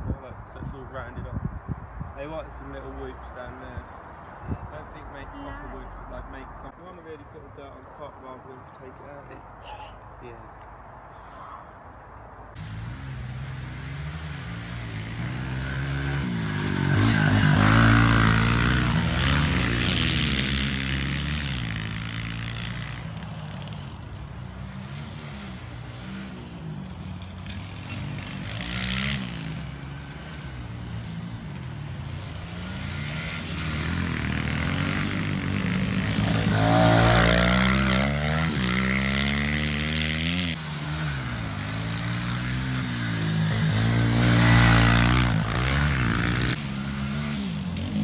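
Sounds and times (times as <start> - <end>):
pit bike engine revving: 12.6 - 23.0, 24.4 - 48.0.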